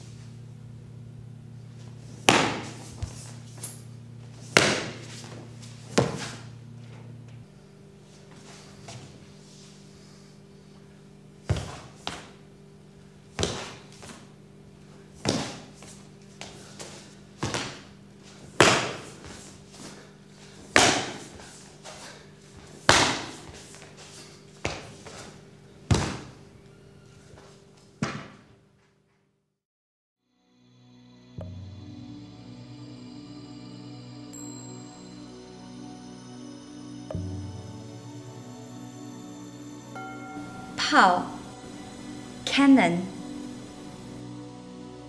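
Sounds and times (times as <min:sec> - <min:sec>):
low hum: 0:00.0 - 0:13.3, 0:30.7 - 0:45.0
wooden staff impacts: 0:02.2 - 0:03.2, 0:04.5 - 0:06.5
feet stamping on hard floor: 0:02.2 - 0:03.7, 0:04.3 - 0:07.0, 0:11.5 - 0:12.4, 0:13.4 - 0:14.3, 0:15.2 - 0:20.0, 0:20.7 - 0:26.5.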